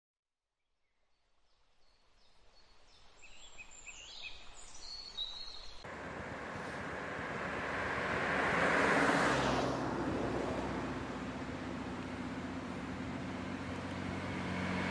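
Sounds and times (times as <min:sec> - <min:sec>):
vehicles passing: 0:05.9 - 0:14.9.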